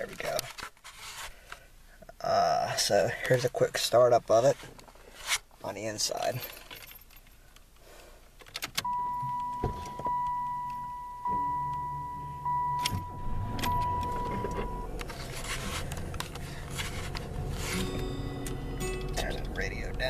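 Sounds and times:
car key clicks: 0:08.4 - 0:19.2
car engine starting and idling: 0:08.6 - 0:20.0
high warning tone: 0:08.8 - 0:16.1.

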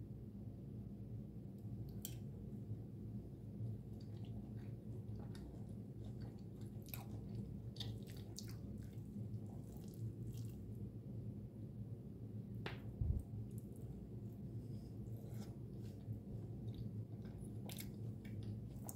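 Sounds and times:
low background hum: 0:00.0 - 0:18.9
spoon scooping wet bread mixture: 0:01.9 - 0:02.4, 0:03.5 - 0:10.8, 0:12.7 - 0:18.9
chewing: 0:03.6 - 0:10.8, 0:15.1 - 0:18.9.

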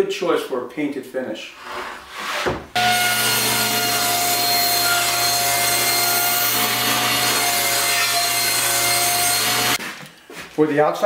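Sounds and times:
table saw whining: 0:02.8 - 0:09.8.

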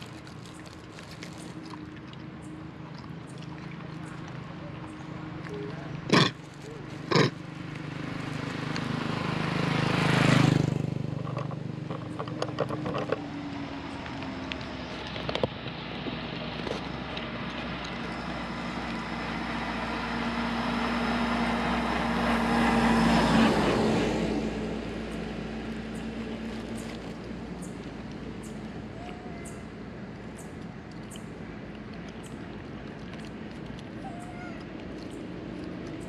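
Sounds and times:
vehicle engine passing: 0:00.0 - 0:36.0
motorbike passing: 0:03.8 - 0:30.6.

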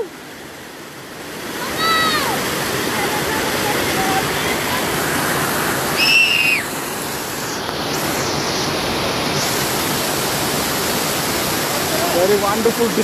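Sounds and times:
water rushing over rocks: 0:00.0 - 0:13.0
high whistle-like call: 0:06.0 - 0:06.7.

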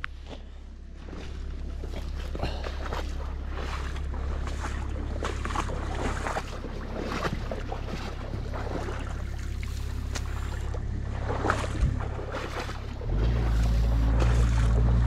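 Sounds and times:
excavator engine droning: 0:00.0 - 0:15.0
water trickling and splashing: 0:01.0 - 0:15.0.

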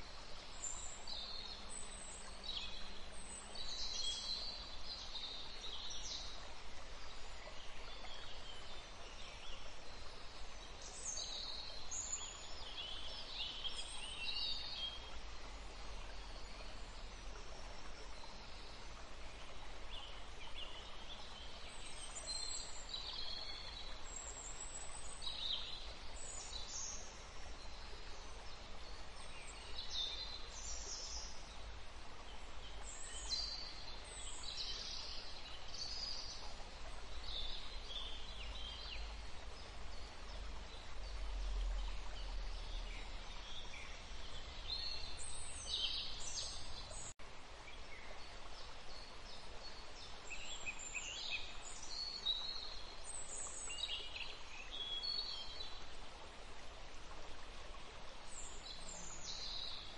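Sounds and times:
songbirds chirping: 0:00.0 - 0:59.9
steady background hiss: 0:00.0 - 0:59.9.

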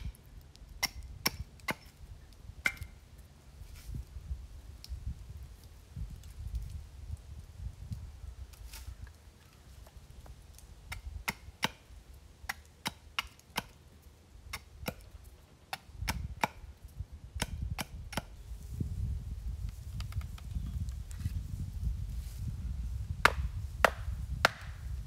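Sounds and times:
hatchet chopping wood: 0:00.8 - 0:02.0, 0:02.6 - 0:03.0, 0:10.9 - 0:11.9, 0:12.5 - 0:13.8, 0:14.5 - 0:15.1, 0:15.7 - 0:16.7, 0:17.4 - 0:18.3, 0:23.2 - 0:24.8.

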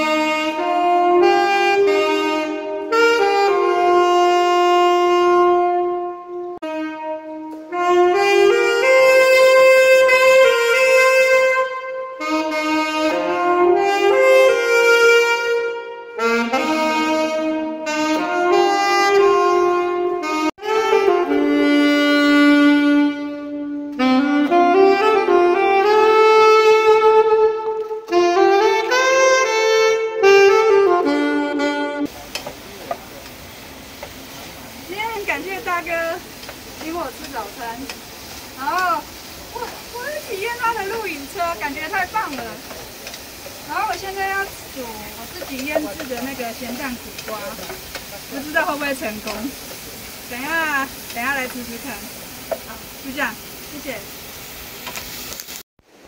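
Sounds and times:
saxophone melody: 0:00.0 - 0:32.2.

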